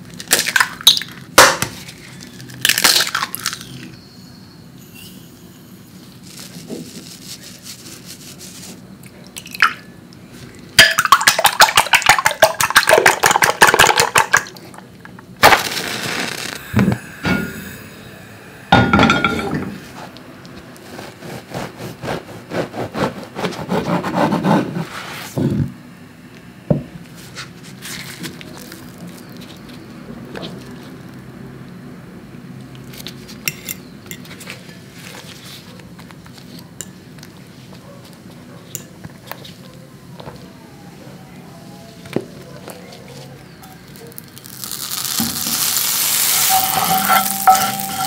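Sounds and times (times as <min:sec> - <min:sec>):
match struck and flaring: 0:15.4 - 0:17.0
whisk clinking in glass bowl: 0:46.4 - 0:48.0.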